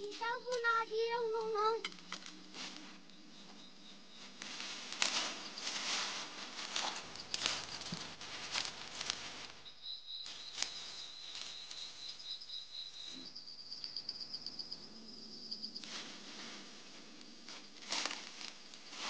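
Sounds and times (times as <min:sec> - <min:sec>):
high insect trill: 0:00.0 - 0:09.0, 0:09.6 - 0:19.0
dry plants rustling and crackling: 0:00.0 - 0:19.0.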